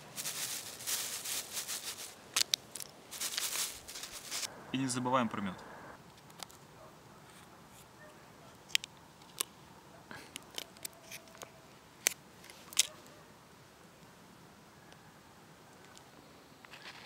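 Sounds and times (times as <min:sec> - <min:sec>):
foil and plastic crinkling: 0:00.0 - 0:04.5.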